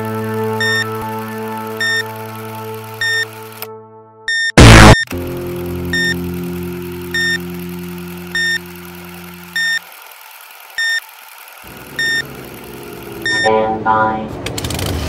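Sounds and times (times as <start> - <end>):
short electronic beeps: 0.6 - 0.9, 1.8 - 2.1, 3.0 - 3.3, 4.3 - 5.1, 5.9 - 6.2, 7.2 - 7.4, 8.4 - 8.6, 9.6 - 9.8, 10.8 - 11.0, 12.0 - 12.2, 13.2 - 13.6
low hum: 4.6 - 9.8.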